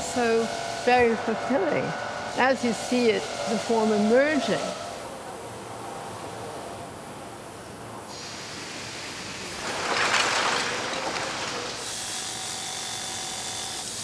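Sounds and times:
steady hiss: 5.0 - 12.1.

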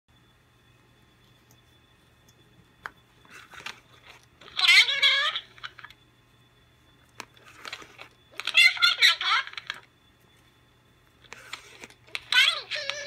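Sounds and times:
talking doll high-pitched voice: 4.4 - 5.7, 8.4 - 9.8, 12.1 - 13.0.

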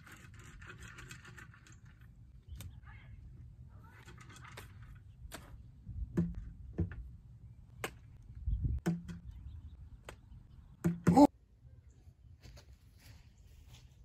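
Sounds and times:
sharp knocks and thumps: 6.1 - 7.1, 10.8 - 11.3.

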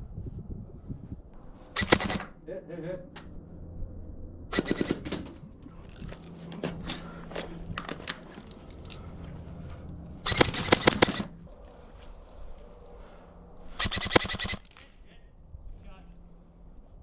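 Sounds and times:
airsoft guns firing: 1.8 - 2.3, 4.5 - 5.3, 10.2 - 11.4, 13.8 - 14.8.

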